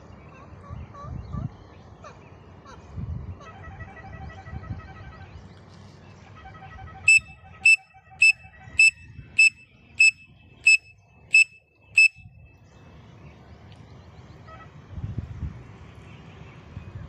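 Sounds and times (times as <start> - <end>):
pen cap whistle notes: 7.1 - 10.8.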